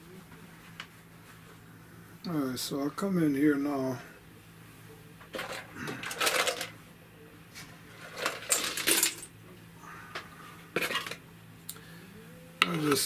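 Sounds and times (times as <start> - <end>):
small objects clattering and rustling: 5.3 - 6.8, 7.9 - 9.3, 10.8 - 11.2.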